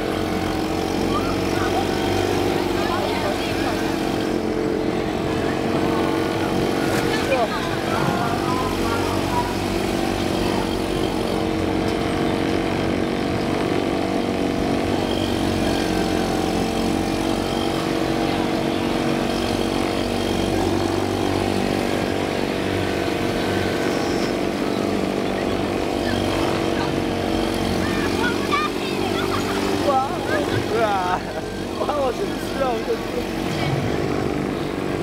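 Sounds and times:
other boat motors: 0.0 - 35.0
outboard motor running: 0.0 - 35.0.

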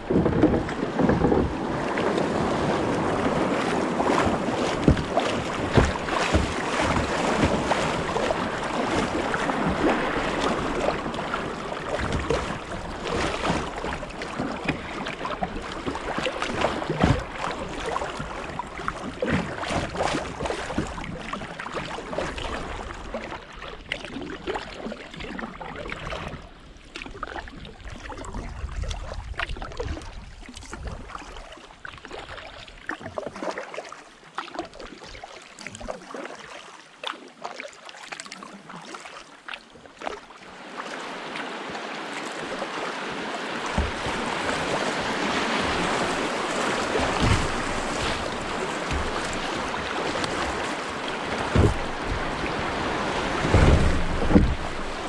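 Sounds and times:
sharp water splashes: 0.0 - 21.4, 37.0 - 55.0
river rushing around kayak: 0.0 - 55.0.

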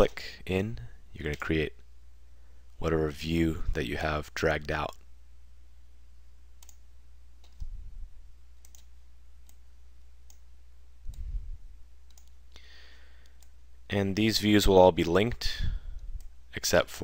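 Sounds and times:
low steady hum: 0.0 - 17.0
computer mouse clicks: 6.6 - 6.8, 7.4 - 7.7, 8.6 - 9.6, 12.1 - 12.4
soft low thumps: 7.5 - 8.3, 11.0 - 11.8.

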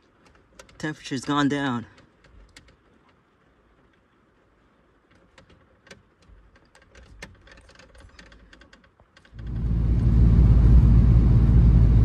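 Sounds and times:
low rumble: 9.4 - 12.0.

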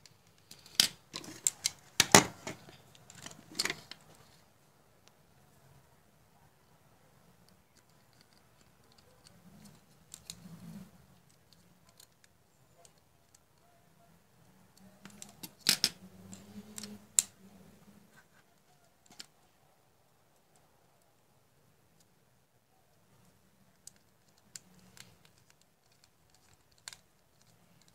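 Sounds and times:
handling rustles: 0.3 - 4.5.

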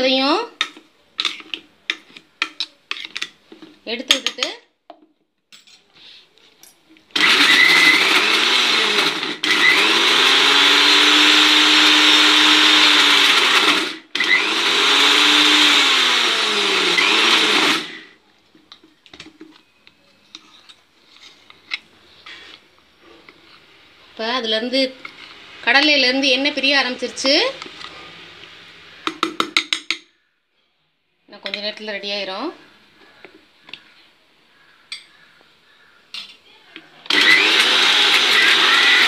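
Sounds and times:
mixer grinder motor whining: 7.1 - 18.2, 37.0 - 39.0.

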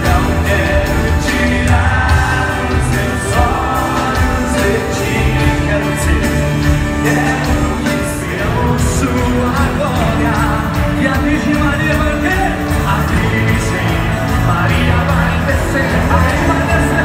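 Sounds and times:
live band playing: 0.0 - 17.0
person singing: 0.0 - 17.0.

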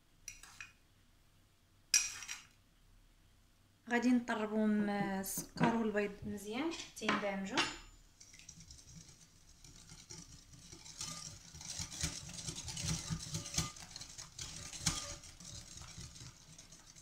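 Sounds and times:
whisk beating in glass bowl: 8.1 - 17.0.

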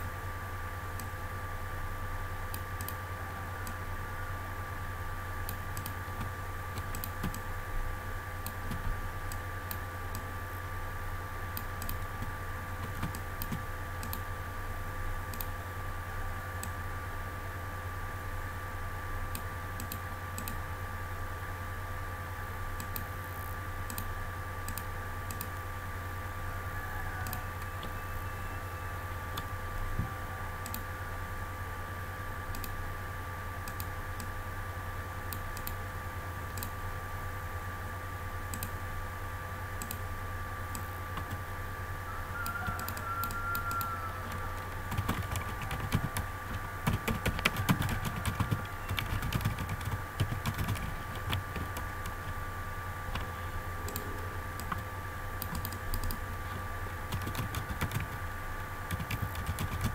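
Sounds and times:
steady low hum: 0.0 - 59.9
keyboard typing: 5.5 - 7.4, 8.4 - 9.4, 11.6 - 14.2, 40.8 - 41.4, 42.7 - 52.4, 53.1 - 56.2, 56.9 - 58.3, 58.9 - 59.9.

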